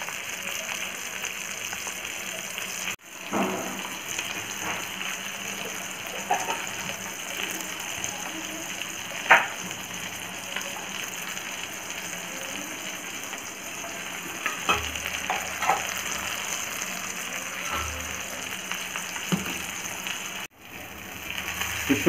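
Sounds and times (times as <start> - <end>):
oil sizzling in a pan: 0.0 - 22.0.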